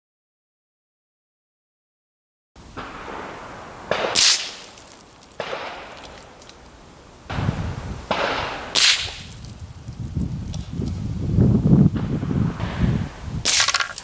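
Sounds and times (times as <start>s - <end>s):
rifle shots: 2.6s - 9.6s, 11.9s - 14.0s.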